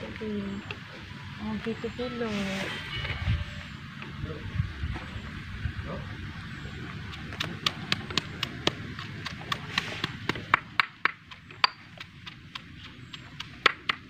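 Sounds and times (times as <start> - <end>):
wind rumble on microphone: 2.0 - 10.0
stone pestle pounding in mortar: 7.0 - 14.0.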